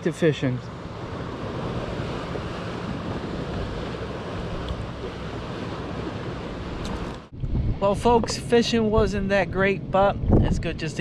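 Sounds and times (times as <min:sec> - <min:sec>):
small waves lapping: 0:00.0 - 0:07.3
wind on microphone: 0:00.7 - 0:11.0.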